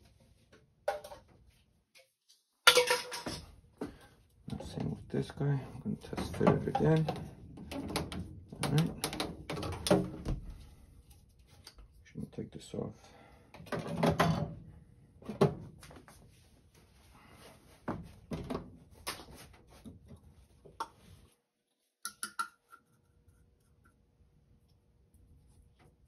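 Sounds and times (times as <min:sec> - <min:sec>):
plastic pipe fittings knocking: 0:06.0 - 0:10.2.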